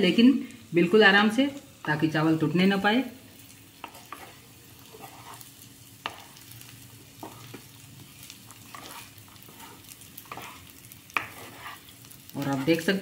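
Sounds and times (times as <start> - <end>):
rice sizzling faintly: 0.0 - 13.0
spatula stirring rice in a pan: 3.0 - 13.0.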